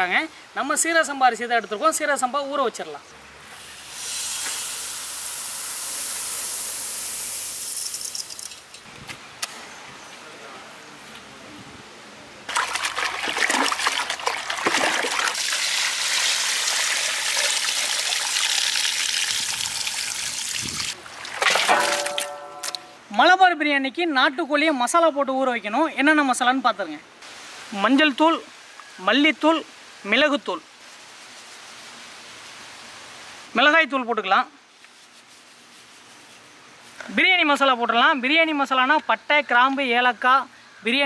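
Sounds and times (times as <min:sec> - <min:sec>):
rice grains pouring into water: 0:12.5 - 0:20.1.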